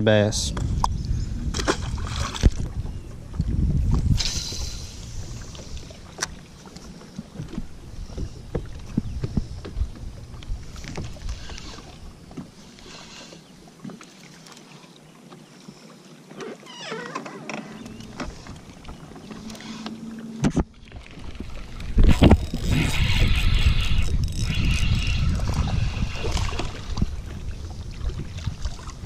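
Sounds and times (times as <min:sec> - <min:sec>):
wind buffeting microphone: 0:00.1 - 0:06.5, 0:07.3 - 0:12.2, 0:20.4 - 0:29.0
water lapping against boat: 0:00.4 - 0:29.0.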